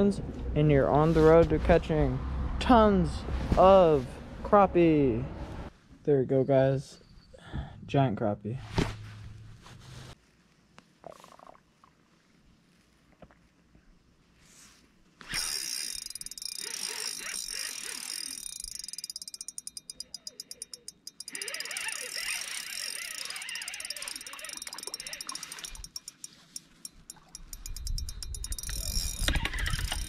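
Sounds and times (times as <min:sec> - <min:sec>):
frogs croaking: 0:20.1 - 0:25.9.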